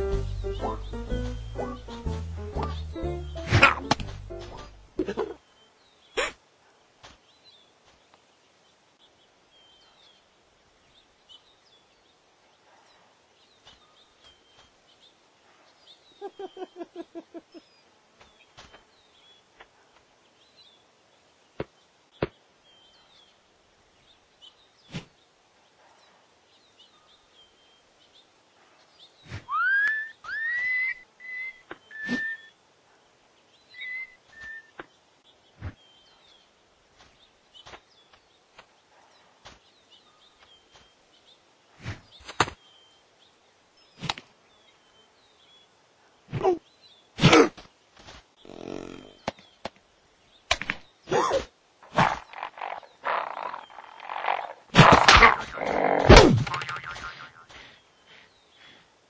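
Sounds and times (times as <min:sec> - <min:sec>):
faint bird chirps: 0:21.6 - 0:47.2
rising whistled notes: 0:29.5 - 0:32.5.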